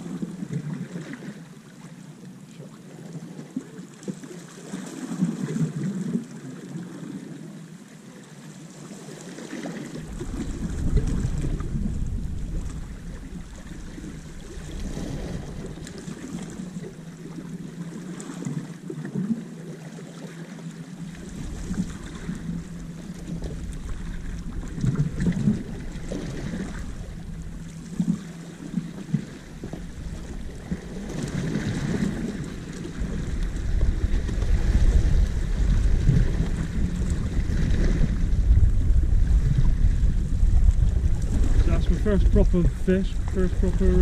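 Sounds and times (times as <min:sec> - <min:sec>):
small waves washing against rocks: 0:08.6 - 0:44.0
wind buffeting microphone: 0:10.0 - 0:16.9, 0:21.2 - 0:44.0.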